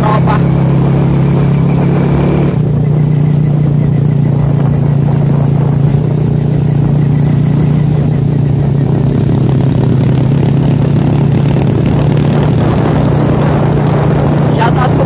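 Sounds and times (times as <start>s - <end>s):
rushing wind: 0.0s - 15.0s
small motorcycle engine running: 0.0s - 15.0s.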